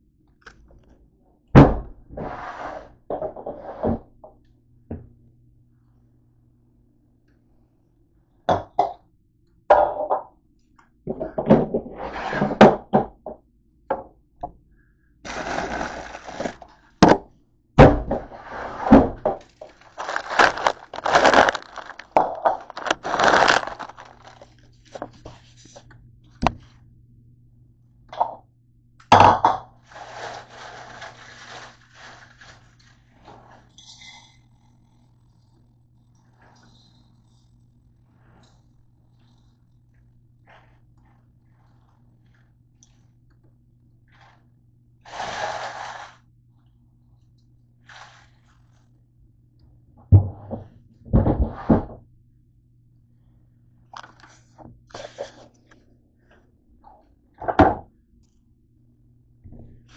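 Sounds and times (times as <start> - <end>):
cereal pouring into bowl: 15.3 - 16.6, 19.6 - 24.5
plastic bag rustling: 15.3 - 16.8, 19.2 - 25.4, 29.9 - 33.1.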